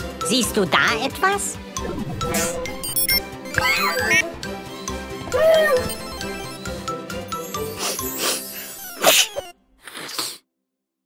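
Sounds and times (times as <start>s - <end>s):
music: 0.0s - 9.8s
cartoon sneeze effect: 7.8s - 10.4s.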